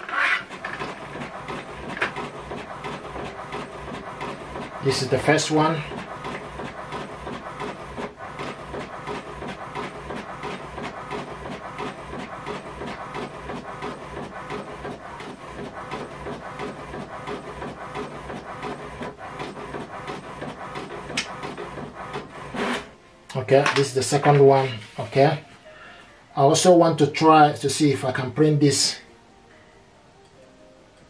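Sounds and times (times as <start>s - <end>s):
inkjet printer whirring: 0.0s - 22.9s, 23.6s - 25.4s.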